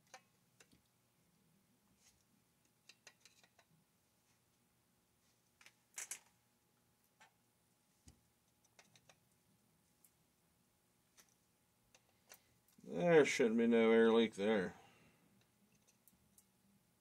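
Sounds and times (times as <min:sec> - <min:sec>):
small metal parts clicking: 0:02.8 - 0:03.7, 0:05.6 - 0:06.3, 0:08.6 - 0:09.2.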